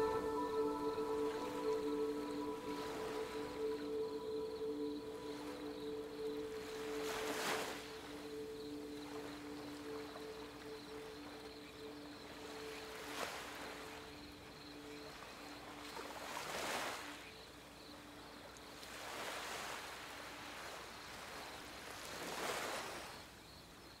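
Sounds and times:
faint held tones: 0.0s - 15.8s
ocean waves washing in: 0.0s - 17.3s.

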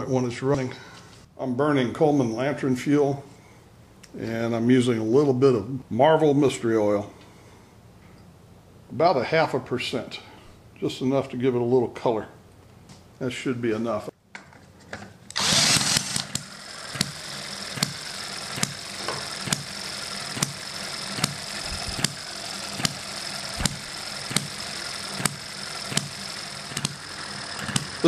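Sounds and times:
cordless drill spinning: 15.3s - 28.0s
model engine humming: 15.3s - 28.0s
engine sharp pops: 15.9s - 17.2s, 17.8s - 18.0s, 18.6s - 19.7s, 20.4s - 20.6s, 21.2s - 24.6s, 25.2s - 27.0s.

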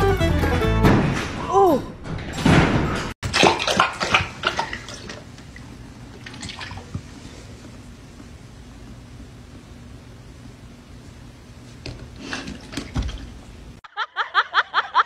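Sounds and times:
dog lapping water from metal bowl: 3.2s - 7.0s
water dripping: 3.3s - 7.0s.

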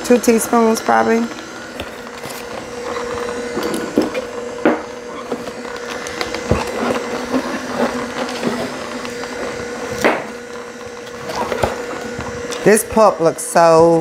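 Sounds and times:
juicer humming: 0.0s - 14.0s
fruit crackling and crunching: 1.3s - 12.6s.

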